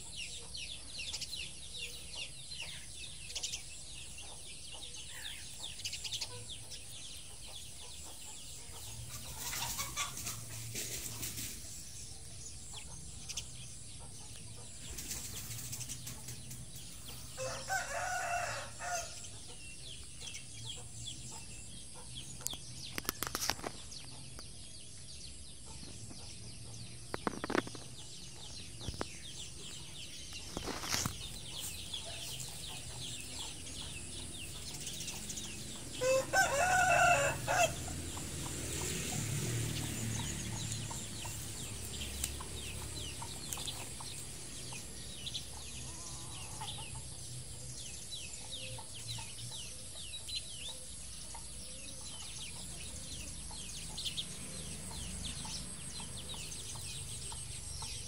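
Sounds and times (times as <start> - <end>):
rooster crowing: 17.4 - 19.2, 35.9 - 37.9.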